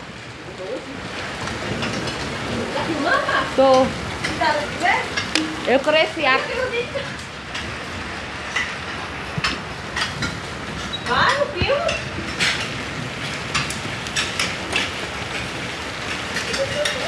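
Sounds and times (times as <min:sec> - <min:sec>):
hailstones ticking on hard surfaces: 0:00.0 - 0:17.0
heavy rain hissing: 0:00.0 - 0:17.0.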